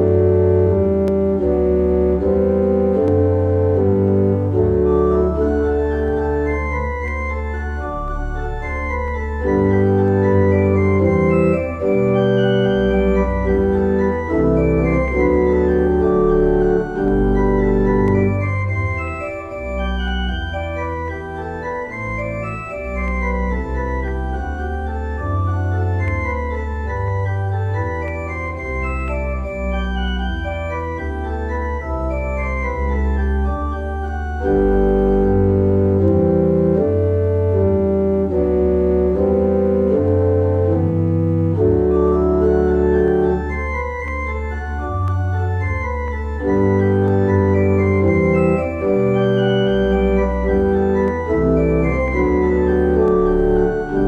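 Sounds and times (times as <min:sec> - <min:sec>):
organ playing held chords: 0:00.0 - 0:54.0.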